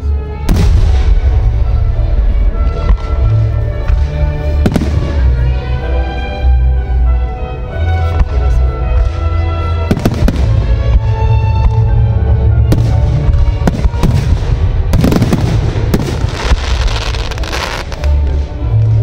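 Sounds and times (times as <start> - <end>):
music playing: 0.0 - 19.0
firework crackling: 13.6 - 18.4.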